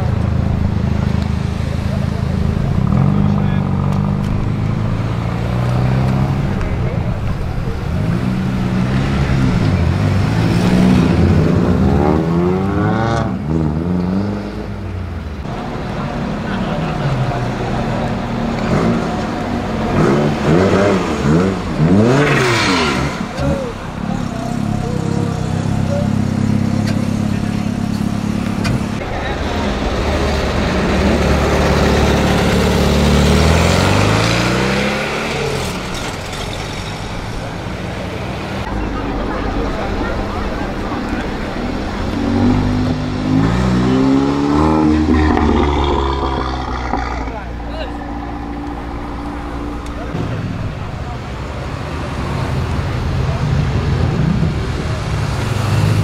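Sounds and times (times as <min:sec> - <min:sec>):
other engines running: 0:14.9 - 0:56.0
car engine revving hard: 0:16.9 - 0:24.3, 0:30.0 - 0:35.9, 0:41.4 - 0:51.2
exhaust crack: 0:25.6 - 0:56.0.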